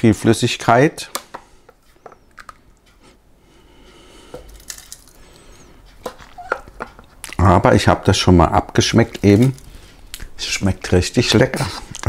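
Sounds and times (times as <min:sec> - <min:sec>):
utensil scooping wet filling: 0:08.8 - 0:10.3.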